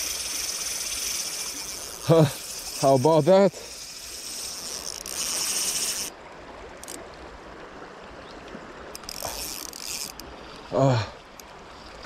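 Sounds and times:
fishing reel drag screaming: 0:00.0 - 0:06.1, 0:08.9 - 0:11.0
river flowing: 0:00.0 - 0:12.0.

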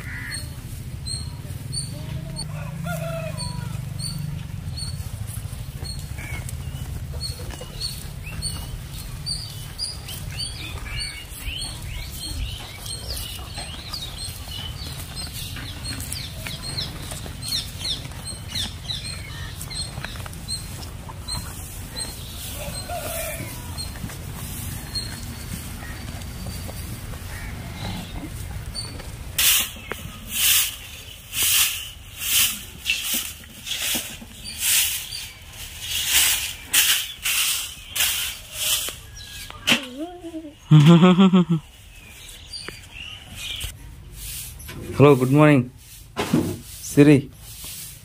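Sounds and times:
calves munching dry straw: 0:04.7 - 0:39.3.

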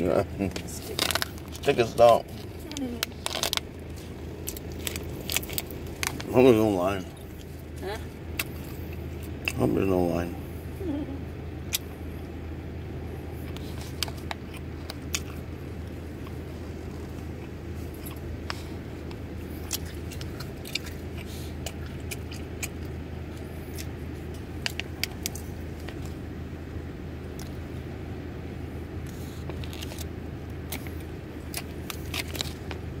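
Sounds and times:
car cabin engine hum: 0:00.0 - 0:33.0
chewing: 0:00.5 - 0:06.3, 0:07.0 - 0:09.7, 0:13.4 - 0:26.3, 0:27.3 - 0:27.6, 0:29.0 - 0:33.0.

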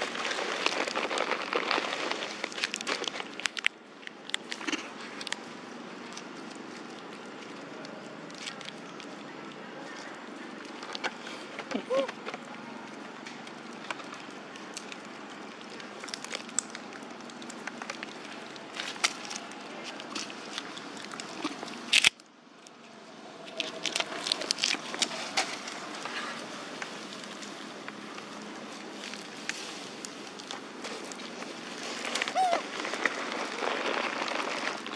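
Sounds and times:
rustling in dry leaves: 0:00.0 - 0:03.7, 0:23.4 - 0:34.9.

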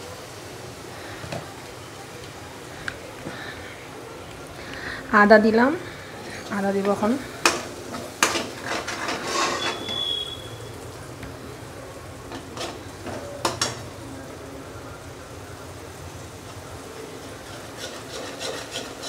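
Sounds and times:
faint sizzle: 0:00.0 - 0:19.0
metal spatula scraping a pan: 0:06.2 - 0:10.6, 0:12.3 - 0:13.8, 0:17.0 - 0:19.0.

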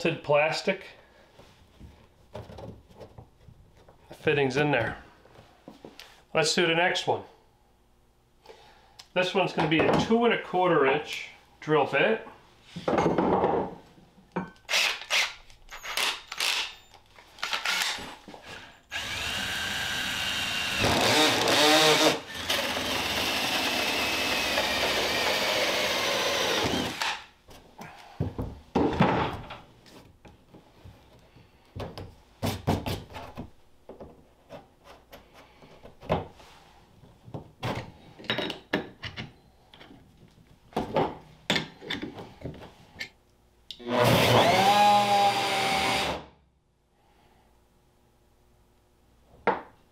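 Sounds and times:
cordless drill cutting plastic: 0:14.7 - 0:16.8, 0:17.4 - 0:18.0, 0:18.9 - 0:27.3, 0:43.8 - 0:46.2
tools clicking and knocking: 0:38.2 - 0:40.4.

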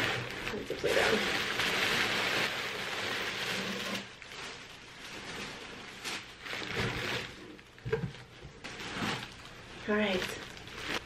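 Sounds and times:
packaging rustling: 0:00.0 - 0:11.0.

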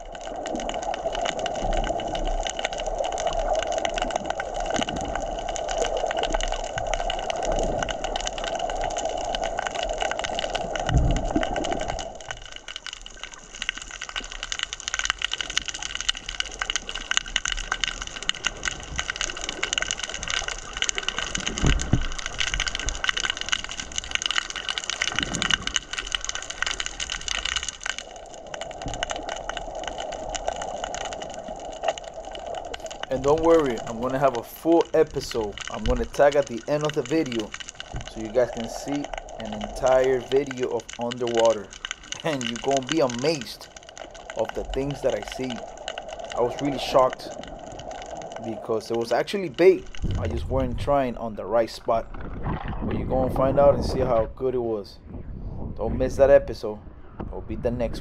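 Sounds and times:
underwater crackling: 0:00.0 - 0:55.3
dull low thumps: 0:10.8 - 0:12.0, 0:49.7 - 0:51.4.

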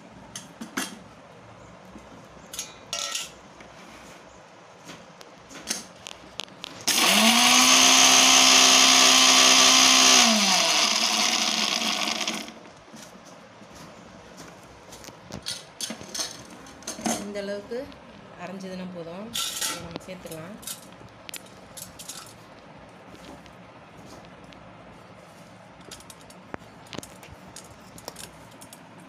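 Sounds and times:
mixer grinder motor: 0:06.8 - 0:12.7.

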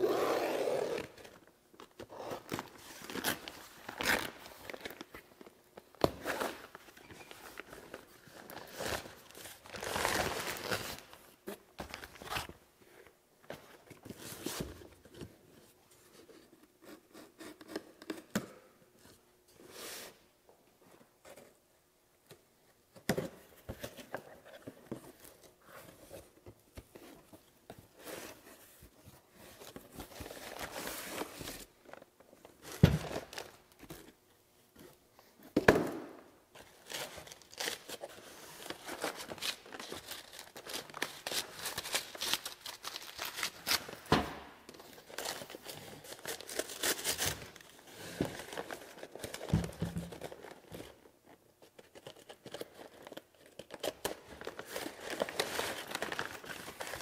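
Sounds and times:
paper crinkling and tearing: 0:36.8 - 0:44.1.

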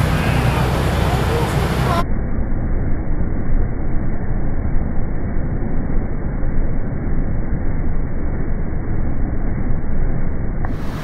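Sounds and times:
fans rushing air: 0:00.0 - 0:02.0, 0:10.7 - 0:11.0.

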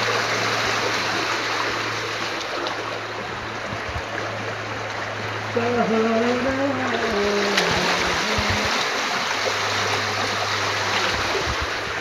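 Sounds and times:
stream water flowing: 0:00.0 - 0:12.0
wavering low tone: 0:03.6 - 0:09.0.

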